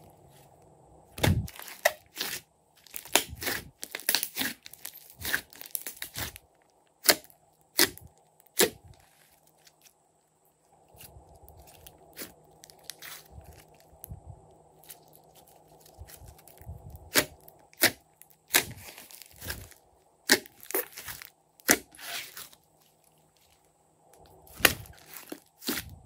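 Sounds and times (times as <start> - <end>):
slime squishing: 1.2 - 6.4, 10.9 - 14.1, 14.8 - 23.6, 24.2 - 26.0.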